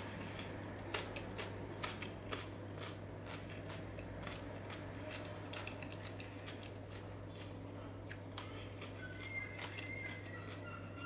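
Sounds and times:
chewing crunchy vegetables: 0.0s - 11.0s
steady low hum: 0.0s - 11.0s.

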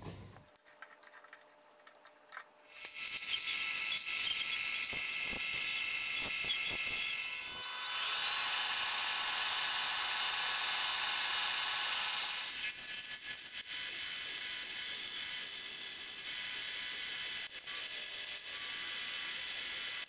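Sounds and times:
drill bit hissing: 2.7s - 8.3s
metal lathe whining: 2.7s - 8.5s.

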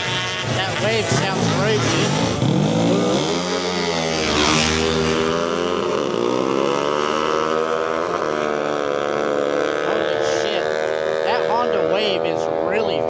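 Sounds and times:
motorbike passing close: 0.0s - 13.0s
motorbikes accelerating: 0.0s - 13.0s.

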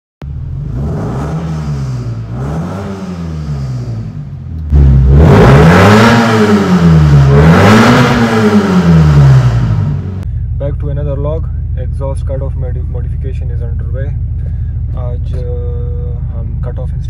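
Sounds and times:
car engine revving: 0.2s - 10.3s
loud open exhaust note: 0.3s - 10.6s.

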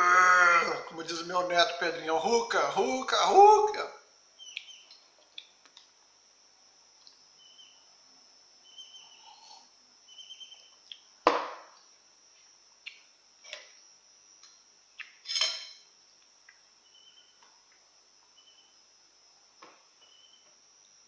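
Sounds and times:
faint high whine: 0.0s - 21.0s
glassy clink: 15.2s - 15.9s.

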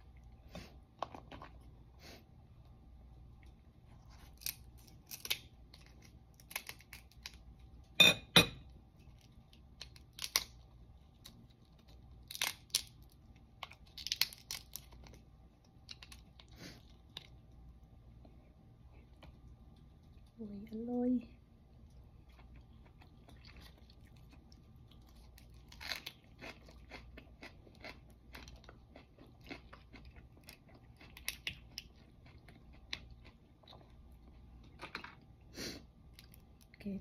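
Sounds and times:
crab shell cracking: 4.3s - 7.4s, 9.2s - 10.6s, 11.2s - 16.4s.

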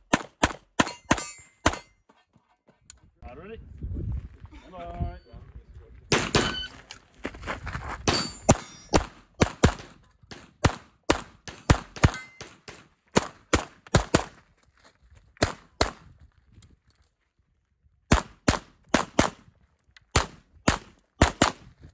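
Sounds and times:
pistol shots: 6.1s - 6.7s, 8.1s - 14.3s, 18.1s - 19.4s, 20.1s - 21.6s.

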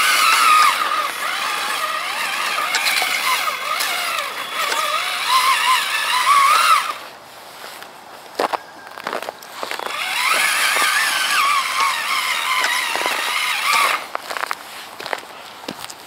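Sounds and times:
rc truck electric motor whining: 0.0s - 7.1s, 9.1s - 14.5s.

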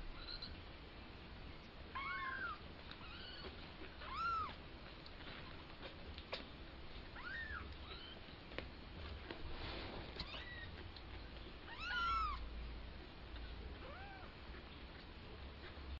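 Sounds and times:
kittens mewing: 11.7s - 12.4s.

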